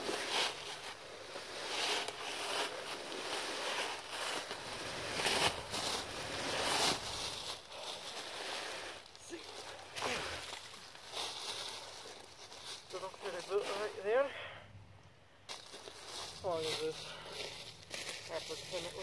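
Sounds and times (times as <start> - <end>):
tree branches dragged across ground: 0.0 - 14.0, 15.5 - 19.0.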